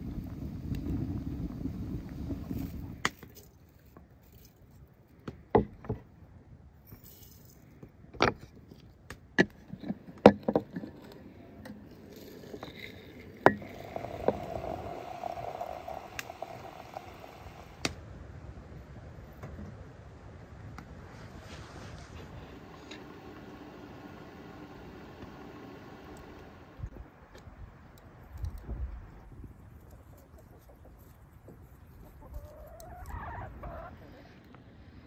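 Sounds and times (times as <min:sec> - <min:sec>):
hot water pouring into teapot: 0:11.9 - 0:17.8, 0:22.2 - 0:26.9.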